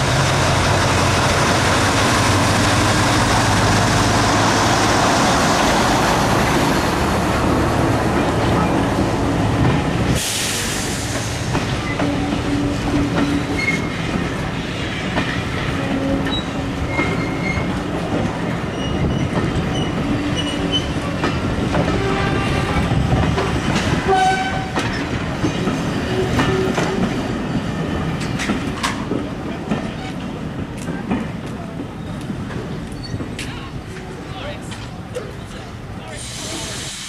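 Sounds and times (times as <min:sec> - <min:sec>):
rumble of train wheels: 0:00.0 - 0:37.0
wheels clicking and squeaking: 0:16.0 - 0:17.8, 0:18.7 - 0:21.0, 0:32.8 - 0:34.1.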